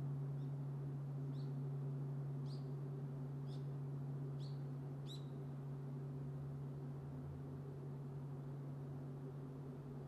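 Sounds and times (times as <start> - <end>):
small bird chirping: 0.4 - 0.6, 1.3 - 1.6, 2.4 - 2.8, 3.4 - 3.7, 4.4 - 5.4.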